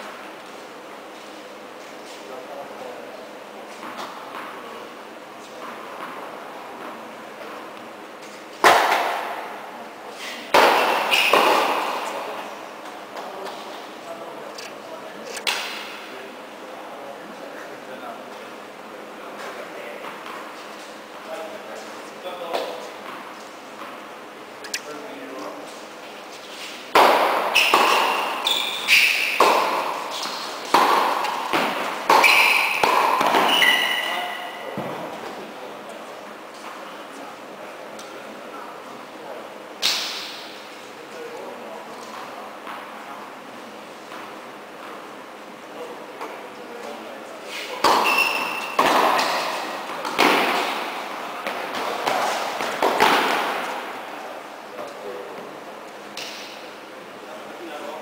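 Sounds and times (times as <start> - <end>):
ball bouncing on court: 3.8 - 4.6, 8.6 - 9.5, 10.5 - 12.3, 26.9 - 35.2, 47.8 - 53.9
tennis racket hitting ball: 8.6 - 9.4, 10.5 - 12.1, 26.9 - 34.9, 47.8 - 53.7.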